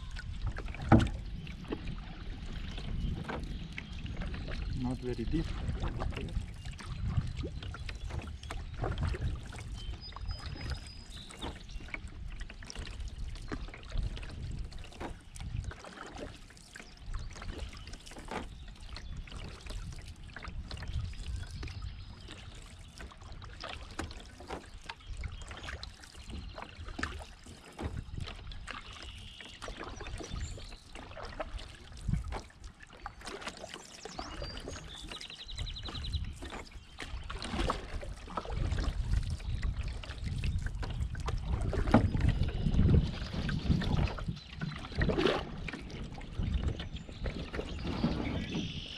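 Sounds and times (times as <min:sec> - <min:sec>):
paddle splashes and drips: 0:00.0 - 0:48.9
water trickling along hull: 0:00.0 - 0:48.9
low knocks on canoe: 0:00.4 - 0:02.0, 0:35.9 - 0:45.9.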